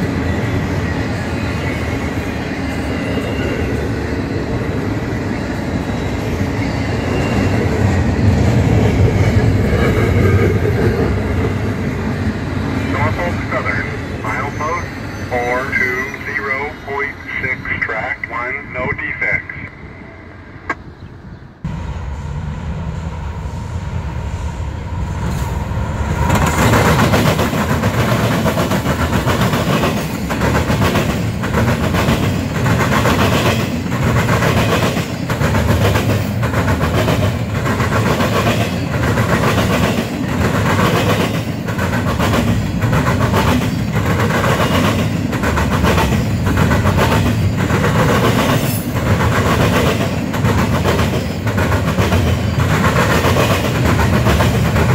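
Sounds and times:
low locomotive rumble: 0:20.3 - 0:27.2
train wheel clacks: 0:26.3 - 0:54.9.

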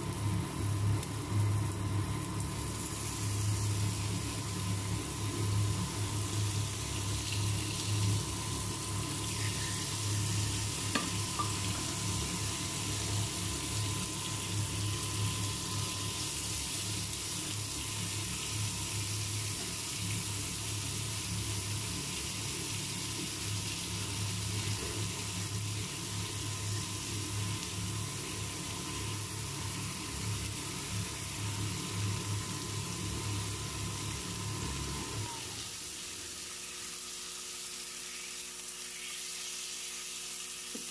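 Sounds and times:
low electrical hum: 0:00.0 - 0:40.9
meat sizzling on grill pan: 0:00.0 - 0:40.9.

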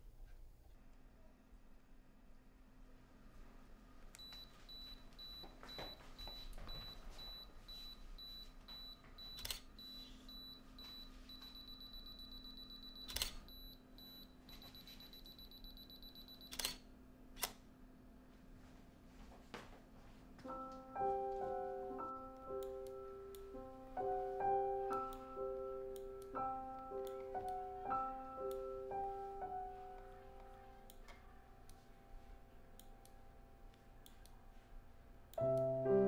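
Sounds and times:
camera self-timer beeping: 0:06.2 - 0:16.8.

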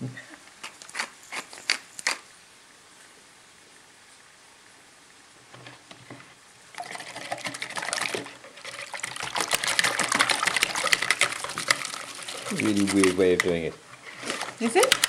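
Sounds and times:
whisk clattering against bowl: 0:06.9 - 0:13.6.

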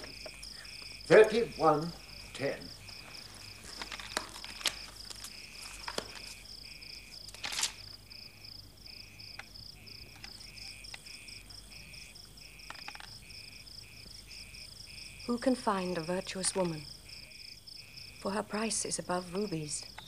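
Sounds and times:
crickets chirping: 0:00.0 - 0:20.0
book pages turning: 0:03.1 - 0:06.5, 0:07.2 - 0:07.9.

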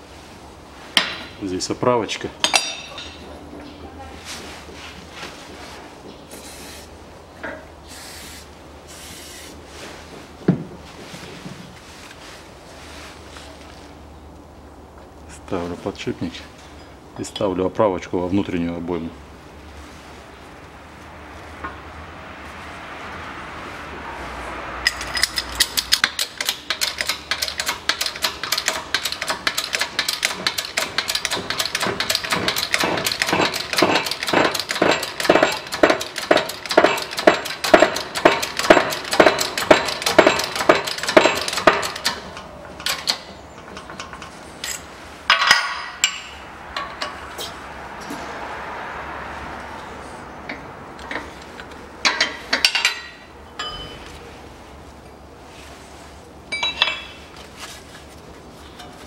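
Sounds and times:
hydraulic press pump clicking: 0:25.0 - 0:44.3.

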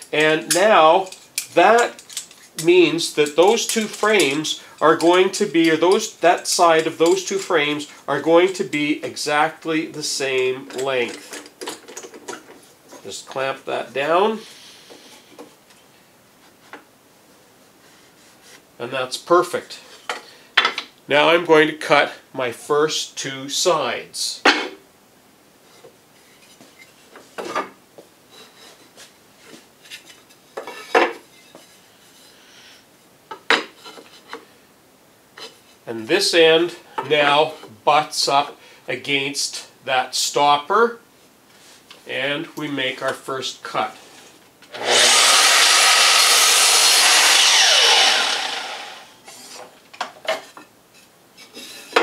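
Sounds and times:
mitre saw cutting wood: 0:44.7 - 0:49.2.

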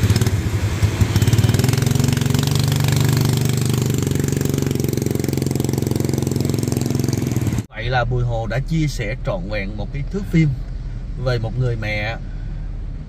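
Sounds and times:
motorbike engine rough drone: 0:00.0 - 0:07.7.

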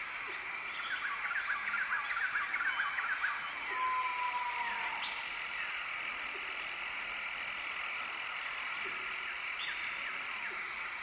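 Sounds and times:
faint chirps: 0:00.1 - 0:06.9, 0:07.6 - 0:11.0
long falling whistle-like note: 0:03.7 - 0:05.2.

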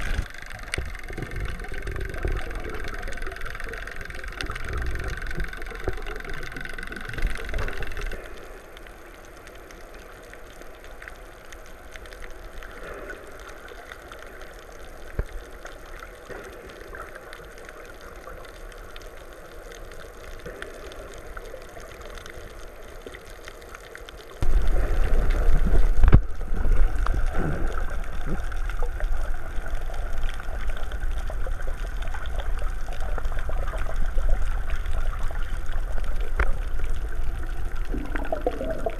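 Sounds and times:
muffled underwater gurgling: 0:00.0 - 0:08.7, 0:24.2 - 0:38.9.

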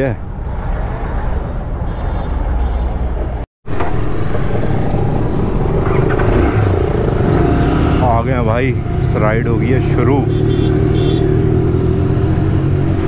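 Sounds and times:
passing road traffic: 0:00.0 - 0:13.0
motorcycle engine pulling away: 0:03.9 - 0:12.9.

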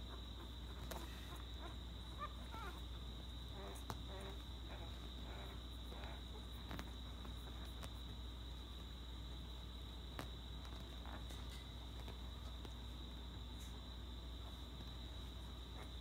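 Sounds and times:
puppies squeaking and whimpering: 0:00.1 - 0:02.8.

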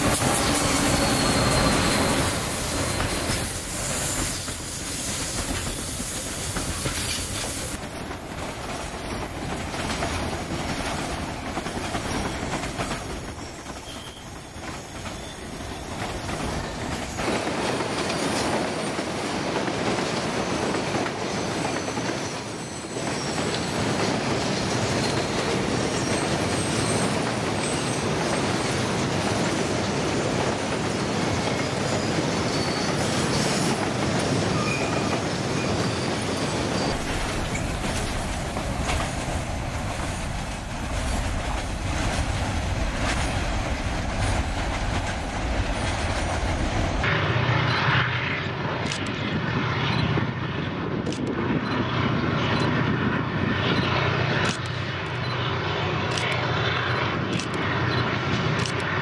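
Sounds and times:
distant diesel locomotives running: 0:00.0 - 0:59.0
freight cars rolling on rails: 0:00.0 - 0:59.0.

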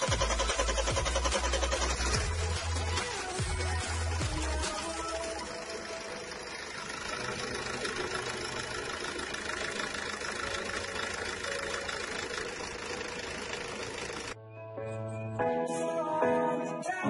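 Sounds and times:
diesel engine idling: 0:00.0 - 0:14.4.

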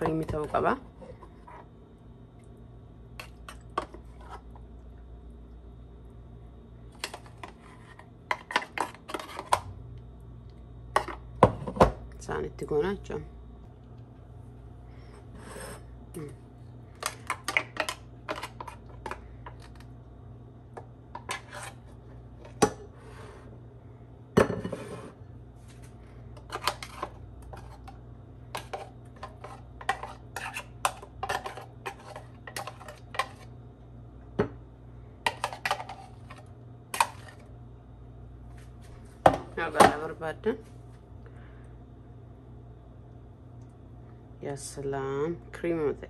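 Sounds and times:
spoon scraping and tapping plastic jar: 0:28.6 - 0:33.4.

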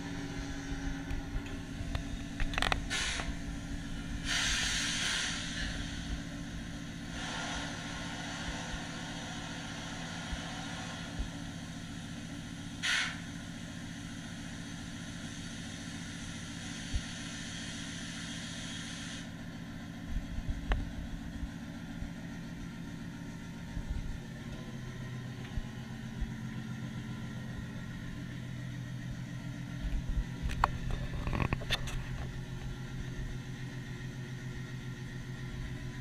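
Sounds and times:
diesel engine hum over loudspeakers: 0:00.0 - 0:36.0
burst of hiss: 0:02.9 - 0:03.4, 0:04.2 - 0:06.3, 0:07.0 - 0:11.2, 0:12.8 - 0:13.3, 0:16.6 - 0:19.3.

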